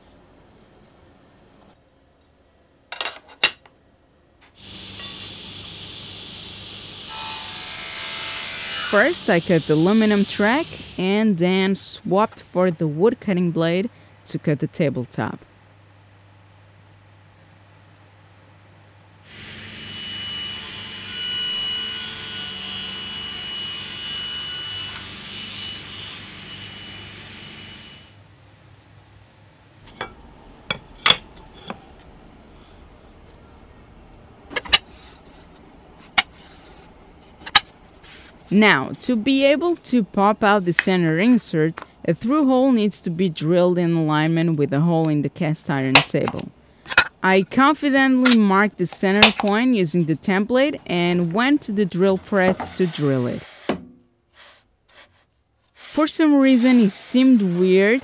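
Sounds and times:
table saw whine: 19.3s - 28.2s.

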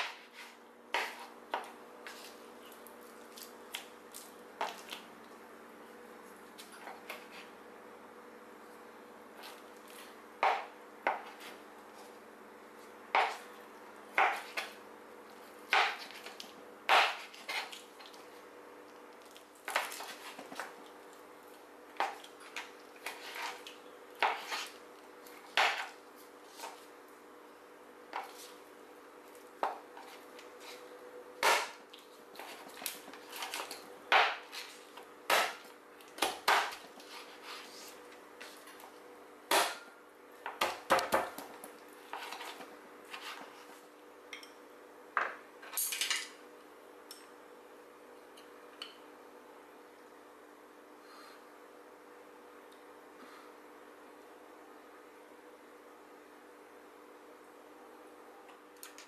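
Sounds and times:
cleaver chopping on cutting board: 16.9s - 17.3s.

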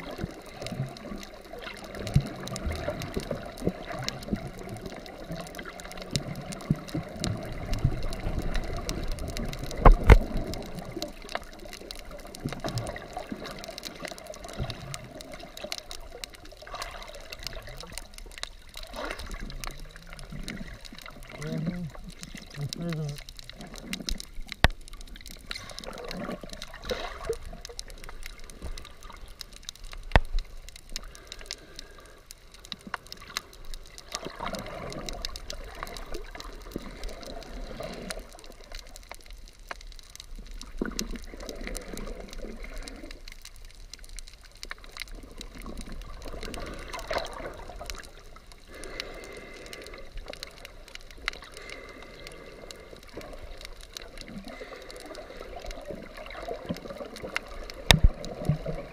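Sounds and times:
muffled underwater gurgling: 0.0s - 29.5s
fine crackle: 0.0s - 58.9s.

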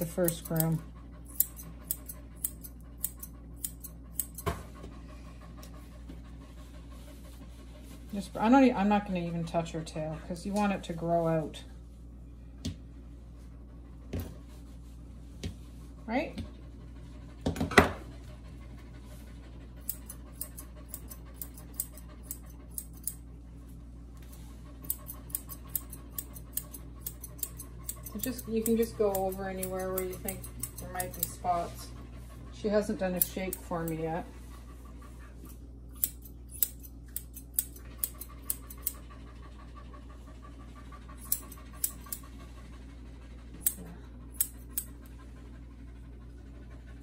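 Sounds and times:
scissors snipping fur: 0.0s - 4.5s, 19.8s - 23.2s, 24.8s - 31.7s, 32.8s - 34.0s, 35.4s - 39.0s, 41.2s - 42.2s, 43.6s - 44.9s.

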